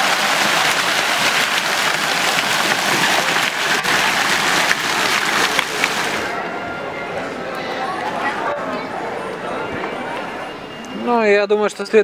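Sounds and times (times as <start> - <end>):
fountain water splashing: 0.0 - 6.4.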